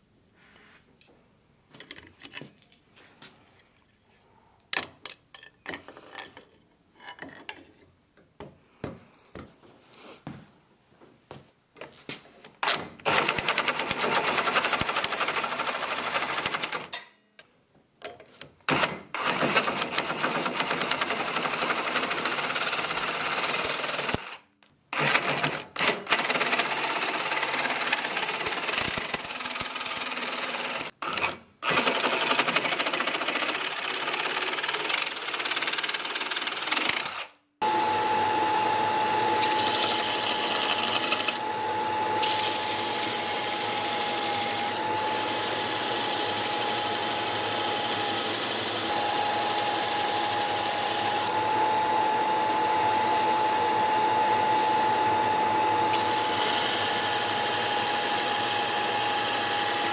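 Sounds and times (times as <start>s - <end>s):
belt sander humming: 19.2s - 24.4s, 25.8s - 59.9s
reciprocating saw cutting wood: 36.0s - 51.6s.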